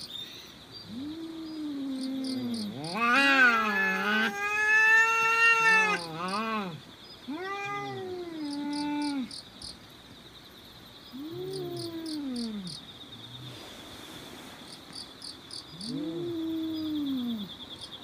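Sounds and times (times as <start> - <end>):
cats yowling: 0.9 - 9.3.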